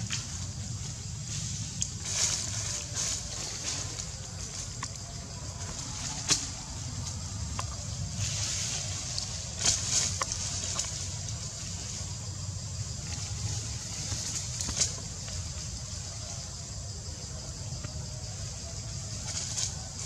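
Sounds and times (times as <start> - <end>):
high hiss: 0.0 - 20.0.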